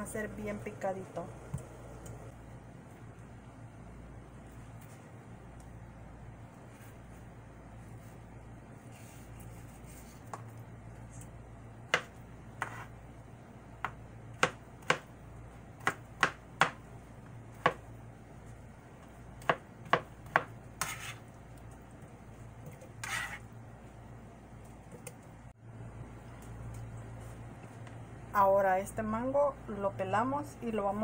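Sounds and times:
knife blade scraping board: 12.6s - 12.9s, 20.8s - 21.2s, 23.0s - 23.4s.

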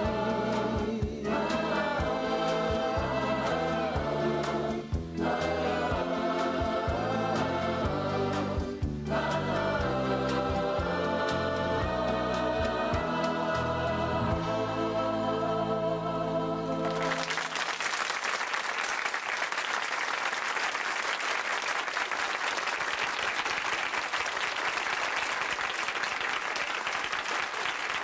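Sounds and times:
choir singing held chord: 0.0s - 17.3s
audience applause: 16.8s - 28.0s.

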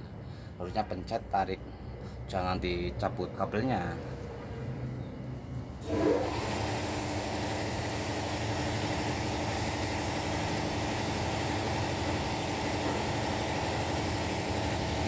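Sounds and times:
machine hissing with low hum: 4.0s - 15.0s.

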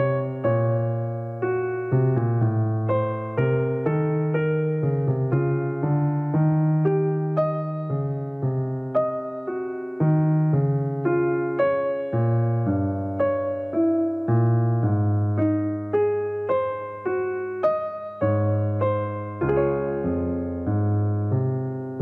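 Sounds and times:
gentle solo piano piece: 0.0s - 22.0s.

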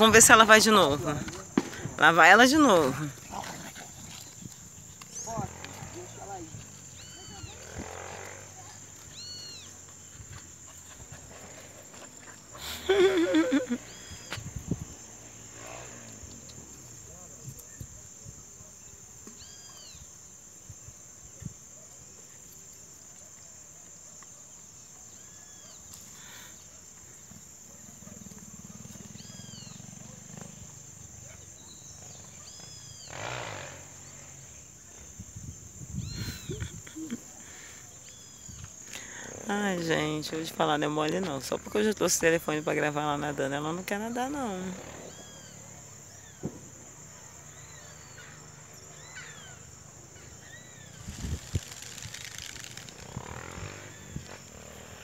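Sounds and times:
birds whistled calls: 6.9s - 7.7s, 9.1s - 9.8s.

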